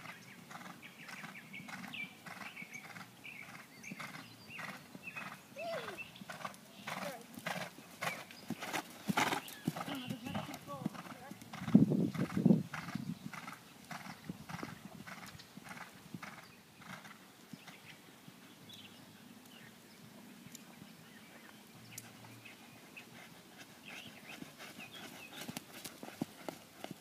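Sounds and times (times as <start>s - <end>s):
hoofbeats on sand: 0.0s - 17.7s, 23.2s - 27.0s.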